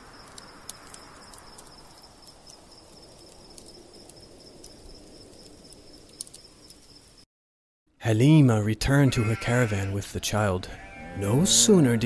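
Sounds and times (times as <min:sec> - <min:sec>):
campfire crackling: 0:00.0 - 0:07.2
crickets chirring: 0:00.0 - 0:07.2.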